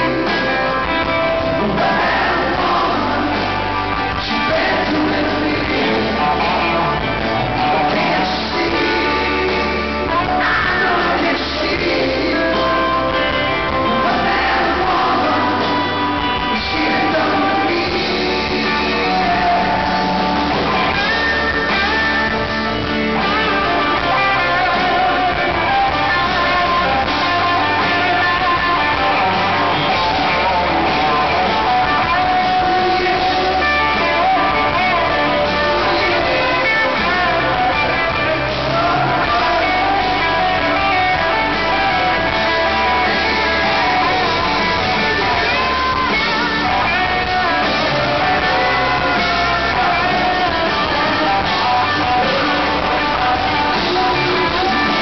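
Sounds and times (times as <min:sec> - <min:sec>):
electric guitars: 0:00.0 - 0:55.0
rock band playing: 0:00.0 - 0:55.0.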